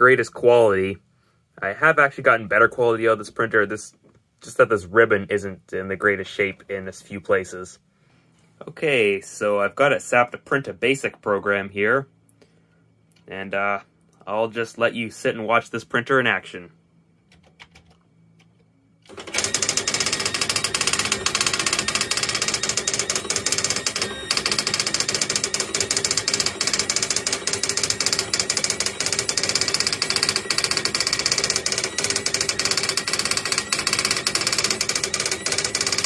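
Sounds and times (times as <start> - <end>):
daisy wheel printer clattering: 19.1 - 36.0.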